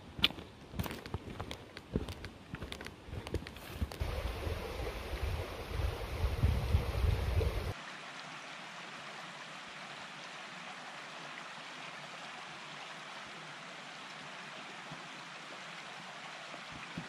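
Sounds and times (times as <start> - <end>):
wind buffeting microphone: 3.1 - 7.8
running water rushing: 3.4 - 17.0.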